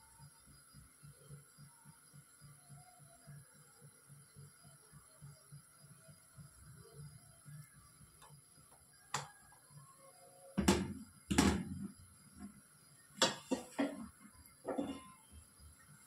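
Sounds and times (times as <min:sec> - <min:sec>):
knocks and thuds on counter: 0:10.6 - 0:11.9, 0:13.2 - 0:14.1.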